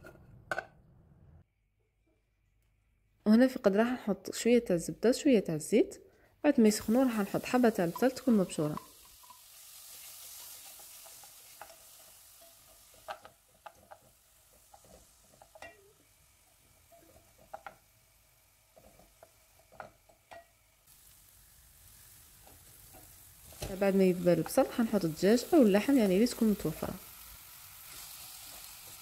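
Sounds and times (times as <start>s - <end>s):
onion sizzling in a pot: 6.5s - 29.0s.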